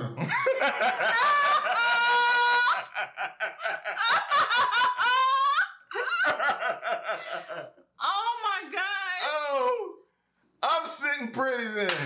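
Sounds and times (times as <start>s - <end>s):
man and woman laughing: 0.0s - 7.9s.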